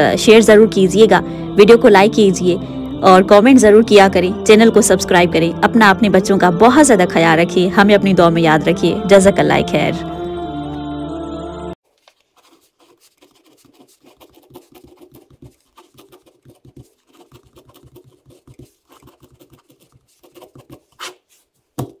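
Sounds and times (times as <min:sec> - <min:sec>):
pen scratching on paper: 0:12.2 - 0:21.6.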